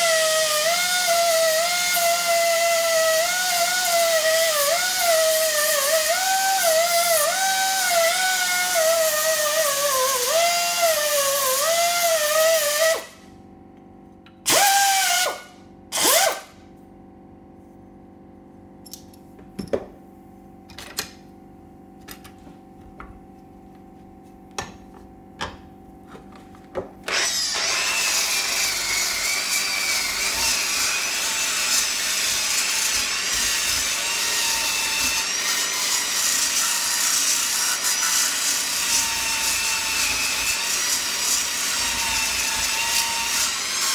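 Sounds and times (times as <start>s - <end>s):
drill grinding metal: 0.0s - 13.1s, 16.0s - 16.5s, 27.1s - 43.9s.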